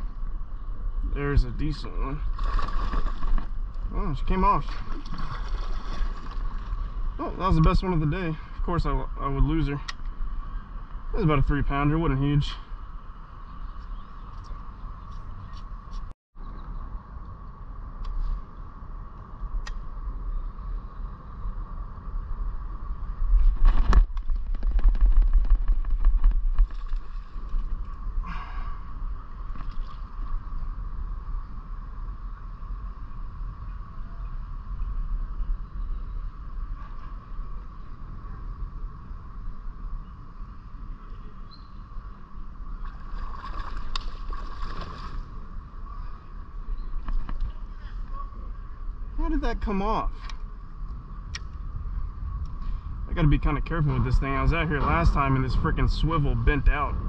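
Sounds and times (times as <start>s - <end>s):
low rumble of wind and water: 0.0s - 57.0s
water splashing: 2.2s - 3.6s, 4.2s - 7.0s, 42.8s - 45.4s.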